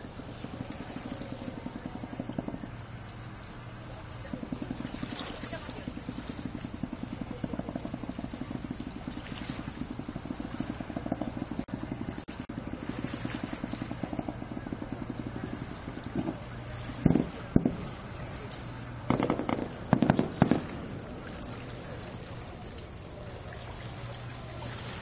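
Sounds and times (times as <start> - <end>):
engine chugging: 0.0 - 25.0
firework boom: 12.5 - 22.5.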